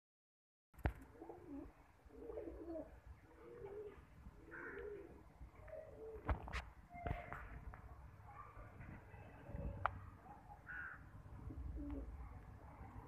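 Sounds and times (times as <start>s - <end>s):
pigeons cooing: 1.0s - 6.5s, 10.7s - 12.3s.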